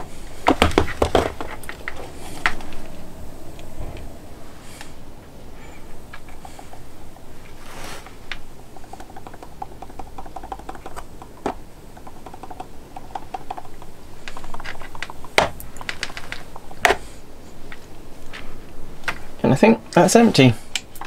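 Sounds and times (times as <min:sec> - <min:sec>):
sharp clicks: 0:08.3 - 0:16.7
grass applicator ticking and rattling: 0:08.3 - 0:16.8.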